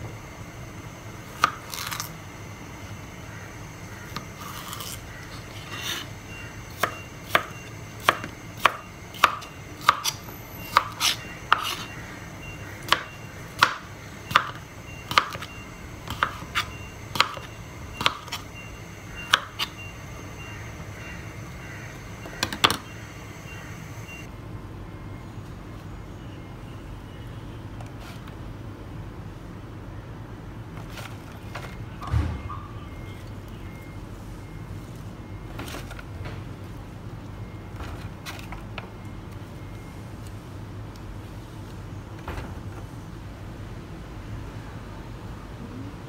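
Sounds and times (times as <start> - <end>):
knife chopping on plastic board: 12.9 - 15.5.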